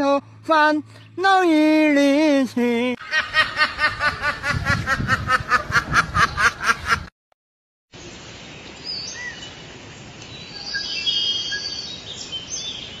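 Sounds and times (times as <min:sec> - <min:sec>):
steady forest hiss: 0:07.9 - 0:13.0
birds chirping and whistling: 0:08.8 - 0:09.6, 0:10.3 - 0:13.0.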